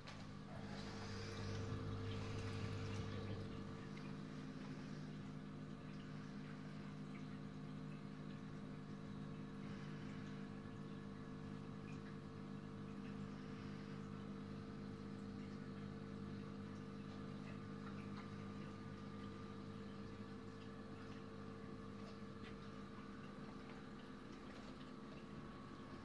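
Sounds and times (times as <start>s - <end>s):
aquarium pumps humming: 0.0s - 26.0s
water trickling and bubbling: 0.3s - 26.0s.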